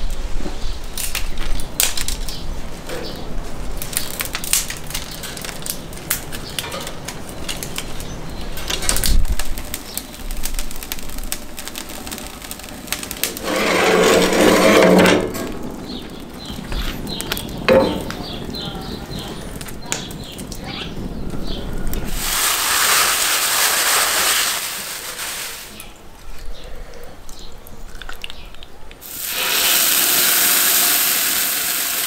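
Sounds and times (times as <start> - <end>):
twig kindling crackling: 0.9 - 2.4, 3.6 - 26.5.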